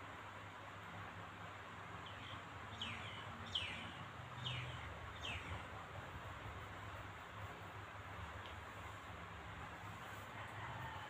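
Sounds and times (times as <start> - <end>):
faint steady hiss: 0.0 - 11.0
small bird chirping: 2.0 - 5.7.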